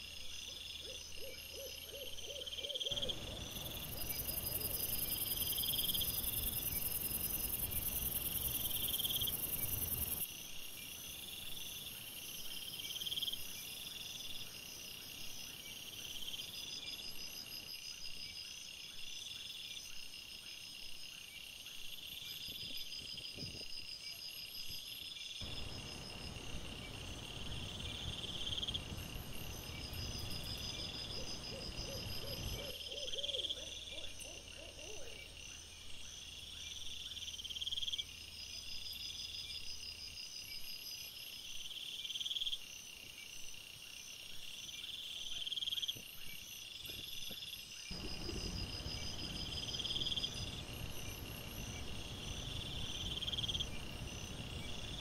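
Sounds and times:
crickets chirping: 0.0s - 55.0s
low hiss: 25.4s - 32.8s, 48.0s - 55.0s.

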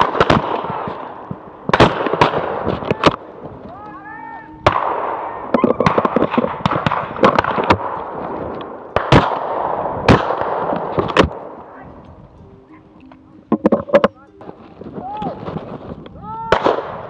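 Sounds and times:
shotgun shots: 0.0s - 3.2s, 4.7s - 8.0s, 9.0s - 11.6s, 16.5s - 17.0s.

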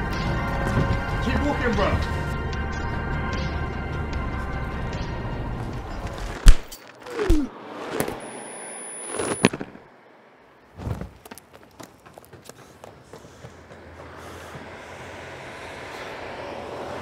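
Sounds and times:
light footfalls: 6.0s - 8.2s, 10.8s - 14.7s
short falling tone: 7.0s - 10.0s.

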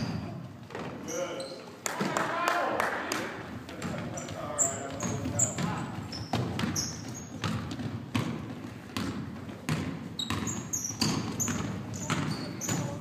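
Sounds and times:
basketball bouncing on wooden floor: 0.0s - 1.0s, 3.7s - 13.0s
sneakers squeaking: 0.0s - 2.2s, 3.4s - 13.0s.

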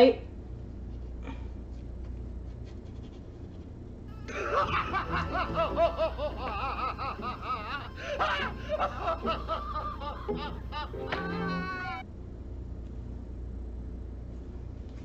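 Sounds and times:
high cackling laughter: 4.1s - 12.0s.

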